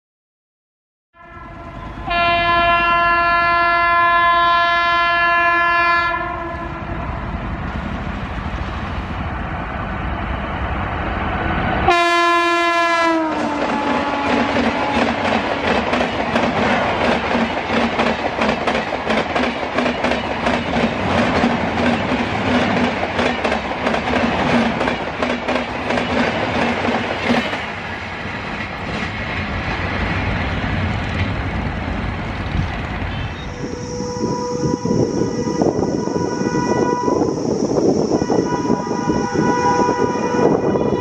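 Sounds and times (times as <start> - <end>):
train wheels clattering over rail joints: 13.4 - 33.1.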